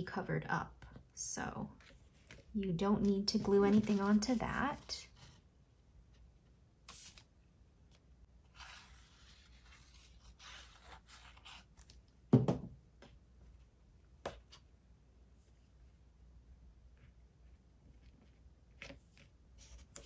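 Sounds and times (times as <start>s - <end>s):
paper rustling on table: 1.8s - 4.9s.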